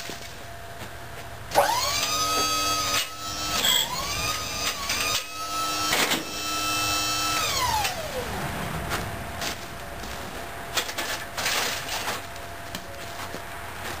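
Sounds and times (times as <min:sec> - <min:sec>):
hydraulic pump whining: 0:01.5 - 0:08.3.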